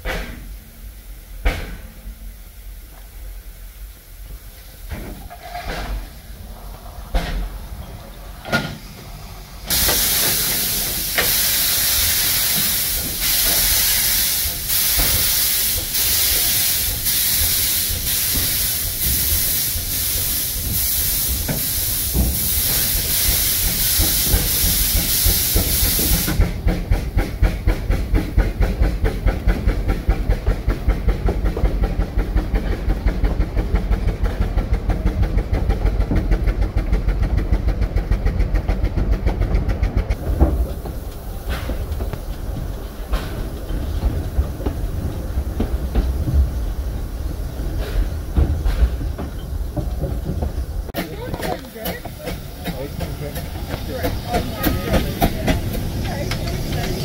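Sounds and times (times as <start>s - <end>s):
steam locomotive exhaust chuffs: 0.0s - 57.0s
train wheels on rails: 0.0s - 57.0s
steam hiss from drain cocks: 9.6s - 30.5s, 40.1s - 57.0s.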